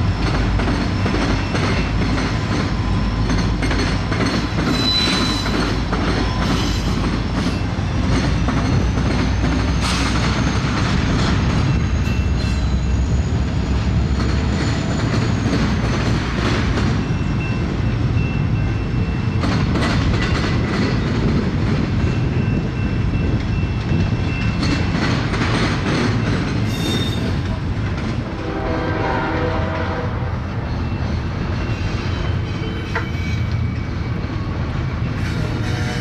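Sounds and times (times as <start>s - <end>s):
rolling rumble of train wheels: 0.0s - 36.0s
high wheel squeals: 4.0s - 8.1s, 11.6s - 15.8s, 26.6s - 27.4s, 30.6s - 36.0s
wheels clicking over rail joints: 19.3s - 28.3s.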